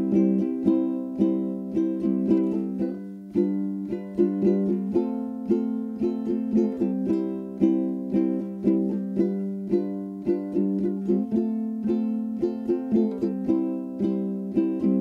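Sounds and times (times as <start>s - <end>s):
plucked string tune: 0.0s - 15.0s.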